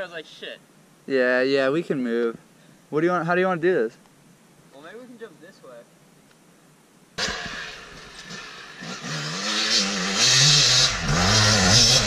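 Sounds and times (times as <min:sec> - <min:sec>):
dirt bike engine revving: 0:07.2 - 0:12.0.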